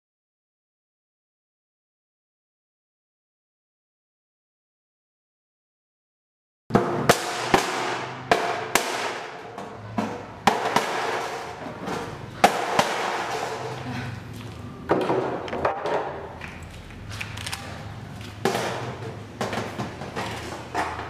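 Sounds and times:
chisel striking metal sheet: 6.7s - 11.6s.

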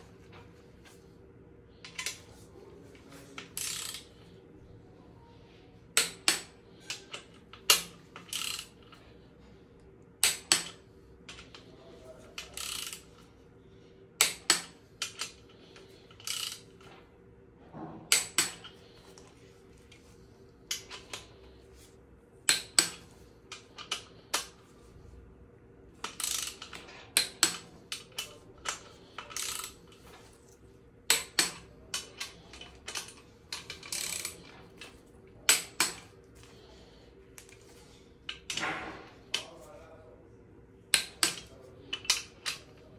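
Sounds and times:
torque wrench clicking: 3.6s - 4.1s, 6.0s - 8.7s, 12.4s - 13.2s, 16.2s - 16.6s, 26.0s - 29.8s, 31.1s - 34.5s.

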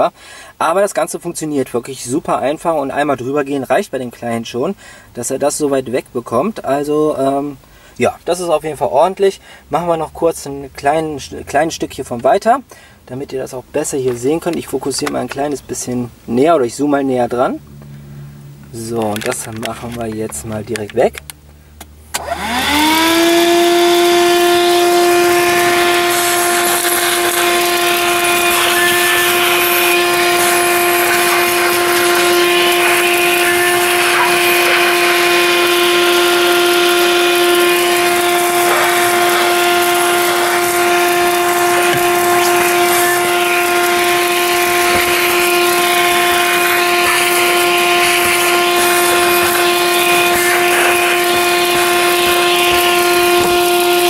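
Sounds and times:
handheld vacuum motor whine: 22.1s - 54.0s
debris ticking through nozzle: 24.4s - 54.0s.

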